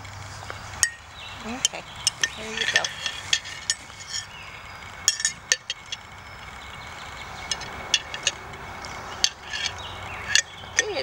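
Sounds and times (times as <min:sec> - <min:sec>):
metal spoon clinking on glass jar: 0:01.6 - 0:04.3.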